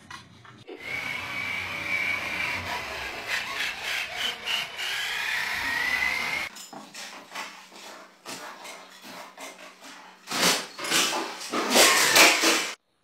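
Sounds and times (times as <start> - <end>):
toy electric motor whining: 0.8 - 6.5.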